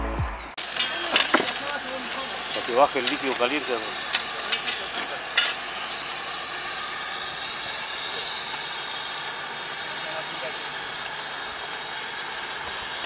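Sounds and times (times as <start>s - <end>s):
gas torch hissing: 0.6s - 13.0s.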